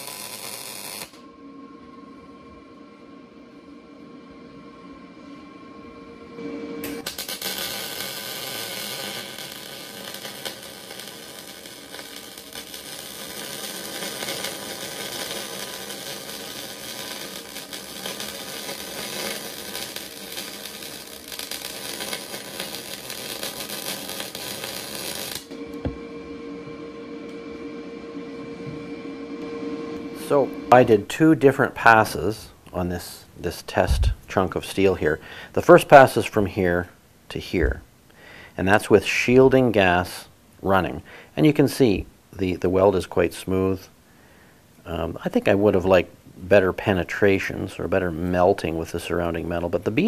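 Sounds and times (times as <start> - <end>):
welding arc crackling: 0.0 - 1.2, 6.8 - 26.0
steady machine hum: 0.0 - 32.7.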